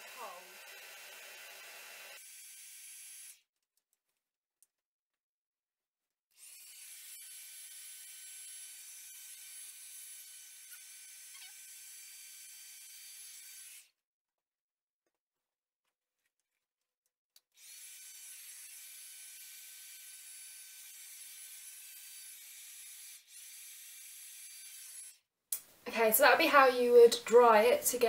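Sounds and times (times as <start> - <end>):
hot-air brush blowing with motor whine: 0.0 - 2.2.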